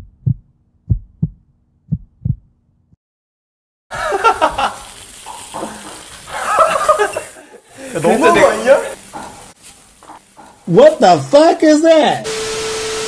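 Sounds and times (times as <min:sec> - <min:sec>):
heartbeat thumps: 0:00.0 - 0:02.6
voices and laughter: 0:03.9 - 0:04.8, 0:06.3 - 0:09.0.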